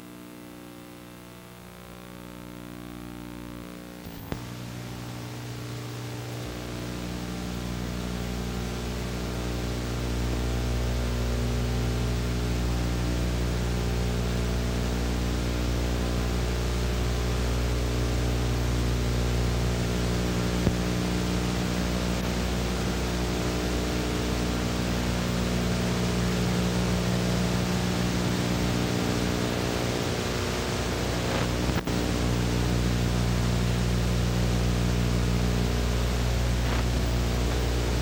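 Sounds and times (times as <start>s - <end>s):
buzzing mains hum: 0.0s - 38.0s
tape hiss: 0.0s - 38.0s
short tape glitch: 3.5s - 7.2s, 30.9s - 32.3s, 36.1s - 38.0s.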